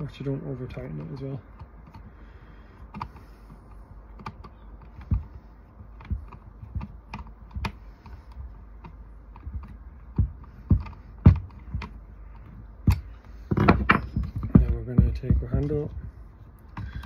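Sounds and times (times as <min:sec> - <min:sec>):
screwdriver clicks and knocks: 0:02.9 - 0:17.0.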